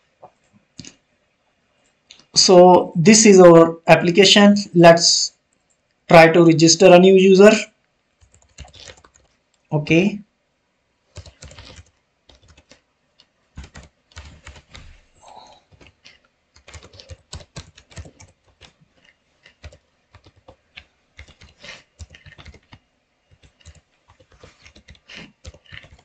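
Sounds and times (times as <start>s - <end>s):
typing on computer keyboard: 8.2s - 9.3s, 11.1s - 26.0s.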